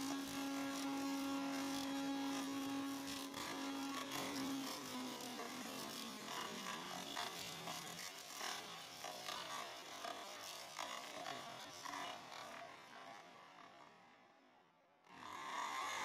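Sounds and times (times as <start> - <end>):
electric blender running: 0.0 - 7.2.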